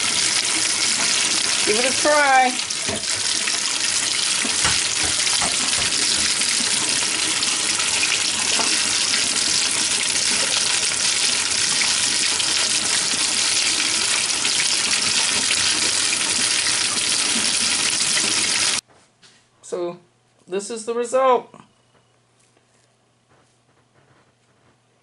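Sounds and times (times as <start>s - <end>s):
tap water splashing: 0.0s - 18.8s.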